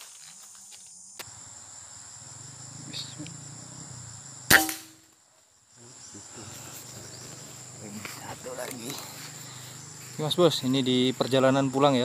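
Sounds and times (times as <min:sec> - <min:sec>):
forest insects shrilling: 0:00.0 - 0:12.0
sharp loud crack: 0:04.5 - 0:05.0.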